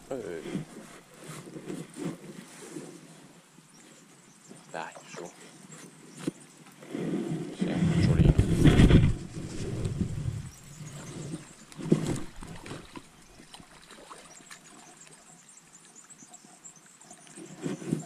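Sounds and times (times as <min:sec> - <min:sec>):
fish splashing at water surface: 0:12.1 - 0:14.8.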